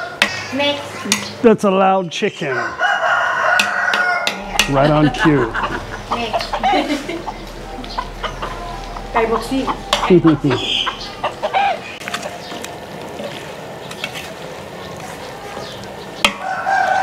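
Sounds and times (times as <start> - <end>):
rooster crowing: 2.5 - 9.2, 16.3 - 17.0.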